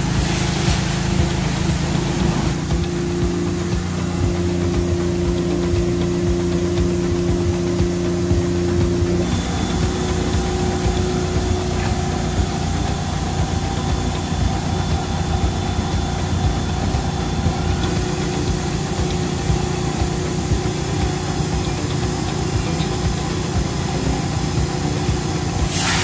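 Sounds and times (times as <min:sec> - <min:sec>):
engine idling: 0:00.0 - 0:26.0.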